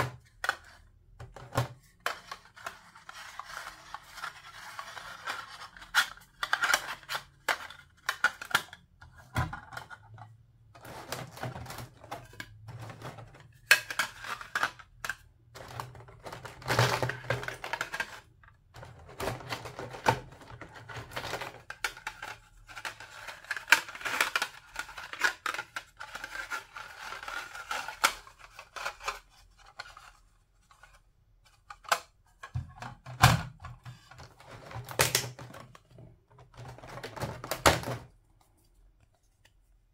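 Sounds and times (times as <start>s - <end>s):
plastic toy pieces clicking and tapping: 4.6s - 10.2s, 21.0s - 29.2s.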